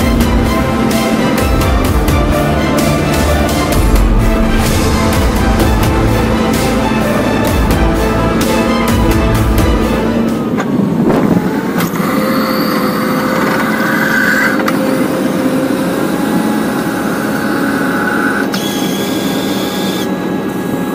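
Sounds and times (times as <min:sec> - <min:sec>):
high whine: 0:00.0 - 0:11.5
plough rushing noise: 0:00.0 - 0:11.8.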